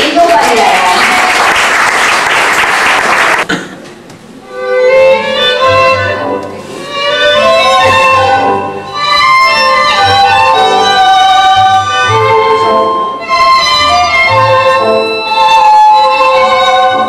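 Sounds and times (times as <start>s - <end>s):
audience applause: 0.1s - 3.5s
tango music with violin: 4.4s - 17.0s.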